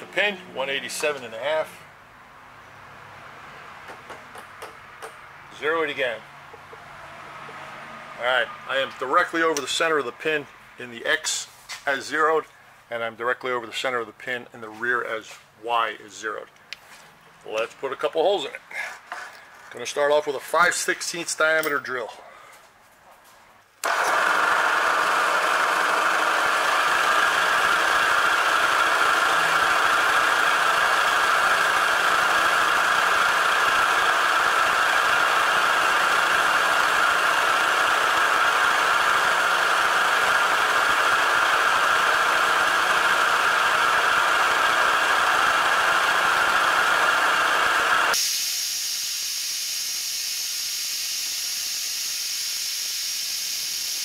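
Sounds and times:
drill cutting steel hiss: 0:23.8 - 0:54.0
milling machine running: 0:23.8 - 0:54.0.

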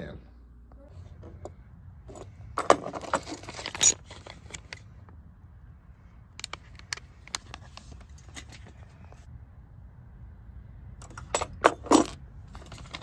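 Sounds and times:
metal hardware clinking: 0:01.3 - 0:04.6, 0:11.0 - 0:13.0.

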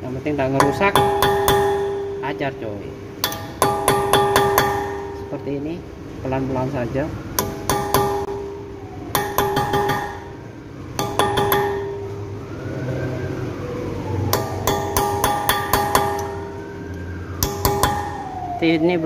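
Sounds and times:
hammer tapping screwdriver on metal: 0:07.4 - 0:08.4, 0:09.2 - 0:10.2, 0:11.0 - 0:12.0.

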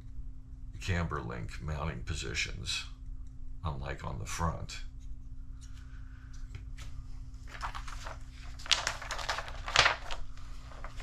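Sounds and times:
steady low hum: 0:00.0 - 0:11.0
paper rustling: 0:05.6 - 0:11.0
paper crackles: 0:06.5 - 0:11.0.

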